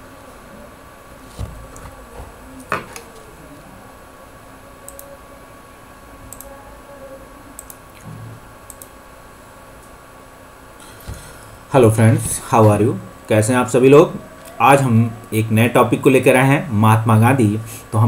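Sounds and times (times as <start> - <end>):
computer mouse clicks: 6.3 - 6.5, 7.6 - 8.1, 8.7 - 9.0.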